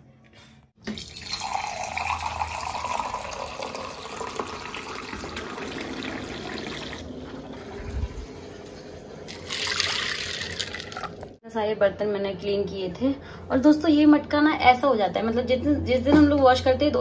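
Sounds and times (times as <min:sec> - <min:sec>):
tap water running into vessel: 0:00.8 - 0:07.0.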